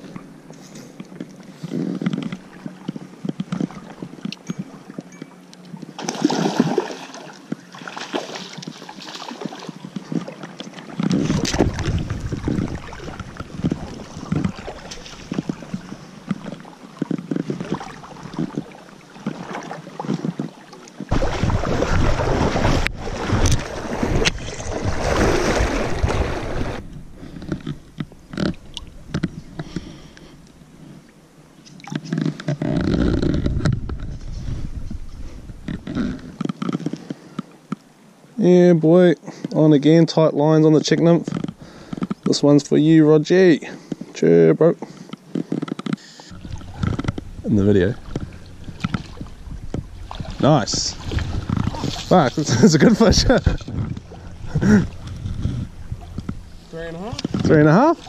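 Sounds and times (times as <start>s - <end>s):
river water sloshing and splashing: 0.0s - 34.5s, 44.8s - 58.0s
wind rumbling on microphone: 8.5s - 18.9s, 20.0s - 30.0s, 32.0s - 37.0s, 45.3s - 58.0s.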